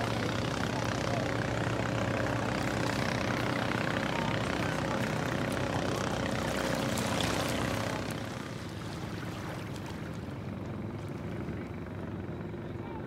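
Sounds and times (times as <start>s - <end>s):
engine drone: 0.0s - 13.0s
shallow water splashing: 2.5s - 11.5s.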